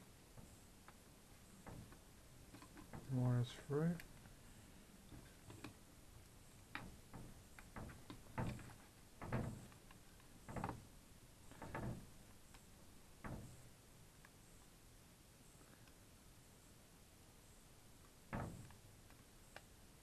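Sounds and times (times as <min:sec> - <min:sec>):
plastic parts knocking and clicking: 0:01.6 - 0:03.2, 0:05.1 - 0:05.8, 0:06.6 - 0:10.9.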